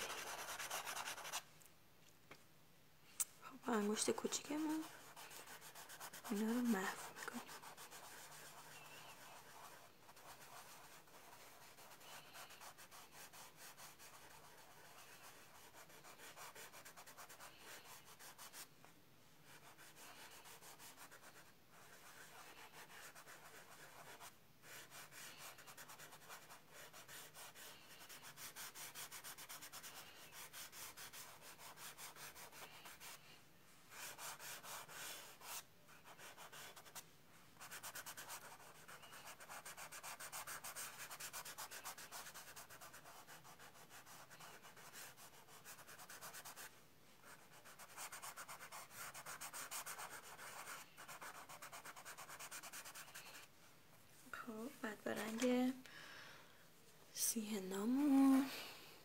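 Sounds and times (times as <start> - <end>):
fingertip rubbing on card: 4.6 - 18.6.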